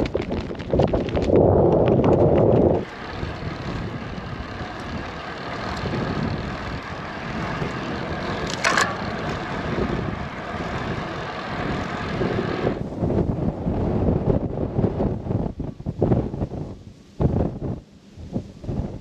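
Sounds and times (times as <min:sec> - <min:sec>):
bicycle road noise: 0:00.0 - 0:19.0.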